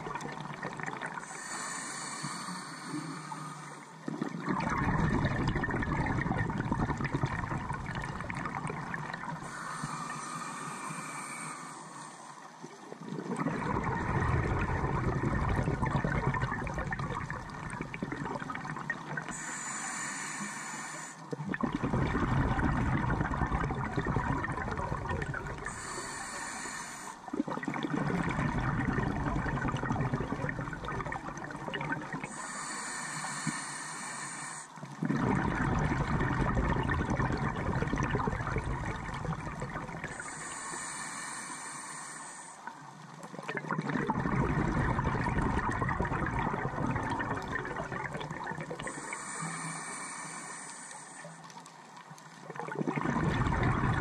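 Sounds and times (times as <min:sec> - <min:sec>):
exhaled bubbles rumbling underwater: 0:00.0 - 0:54.0
regulator hiss on inhale: 0:01.2 - 0:04.1, 0:08.5 - 0:12.6, 0:19.2 - 0:21.4, 0:25.3 - 0:27.3, 0:32.2 - 0:35.0, 0:39.3 - 0:43.2, 0:47.2 - 0:51.8.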